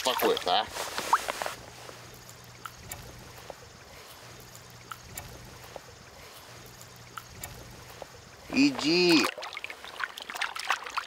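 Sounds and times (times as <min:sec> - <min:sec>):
fishing rod clicks: 0:04.4 - 0:05.8, 0:06.6 - 0:08.1
river water flowing: 0:08.1 - 0:11.0.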